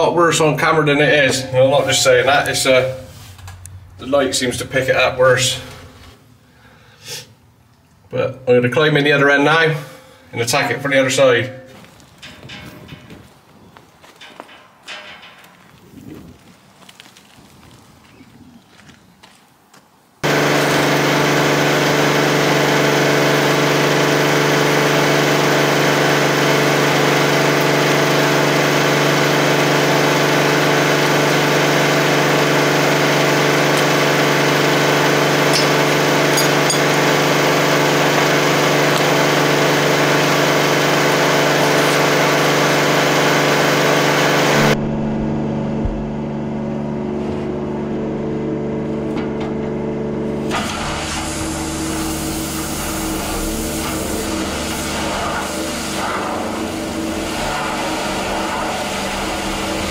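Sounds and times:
pressure washer motor humming: 20.2s - 59.9s.

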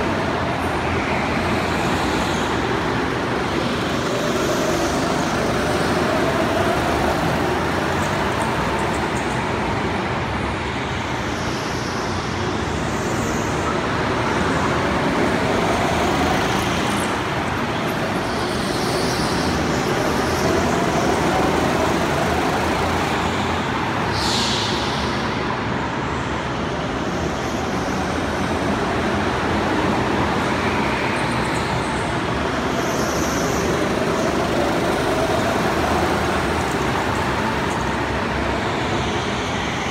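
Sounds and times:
go-kart motors and tyres: 0.0s - 39.9s
high squeal: 17.7s - 25.4s.

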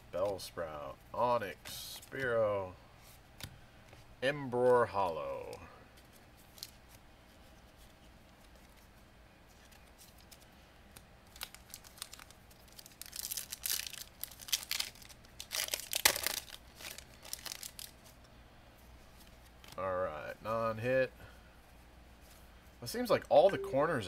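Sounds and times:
foil wrapper tearing and crinkling: 11.2s - 18.1s.

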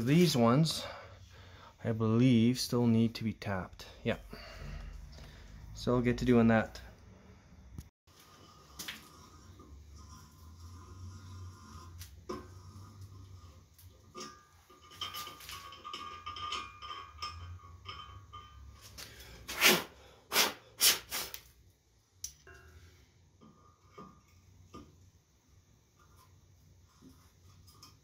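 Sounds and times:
loud puffs of air: 19.5s - 21.4s.

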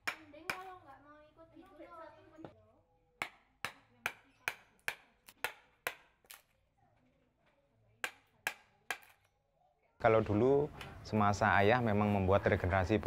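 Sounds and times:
mallet tapping chisel: 3.2s - 6.1s.

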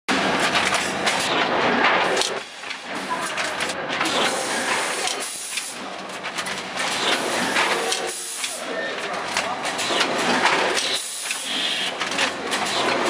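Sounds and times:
packing machine clatter: 0.1s - 13.0s
pneumatic air hiss: 10.8s - 11.9s.

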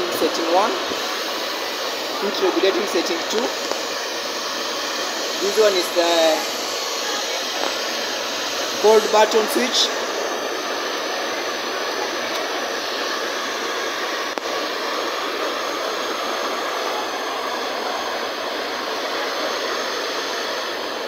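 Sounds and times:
hair dryer running: 0.0s - 21.0s.

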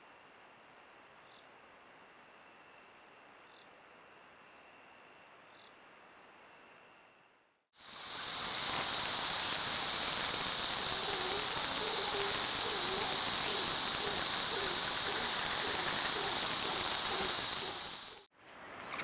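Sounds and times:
high-pitched outdoor hiss: 0.0s - 18.3s.

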